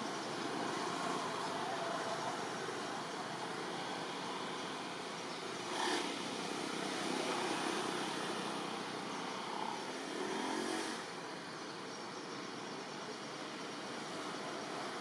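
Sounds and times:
vehicle engine: 0.0s - 11.5s
distant motor traffic: 0.0s - 15.0s.

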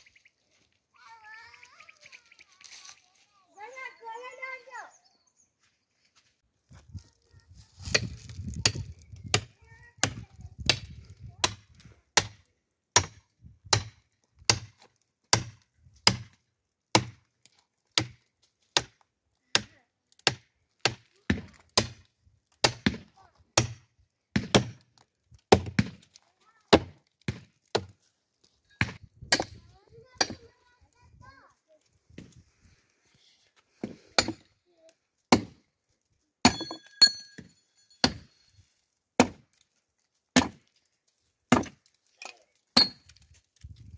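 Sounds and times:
blade chopping wood: 13.0s - 17.3s, 17.9s - 28.0s, 35.3s - 35.6s, 36.4s - 38.3s, 39.2s - 39.6s, 40.3s - 40.7s, 41.5s - 43.2s.

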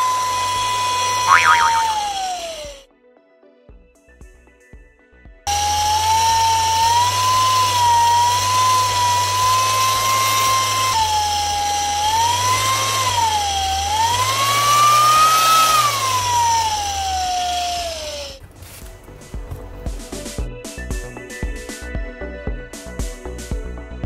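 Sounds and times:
low motor hum: 0.0s - 2.8s, 5.5s - 20.3s
siren wailing: 1.2s - 2.5s.

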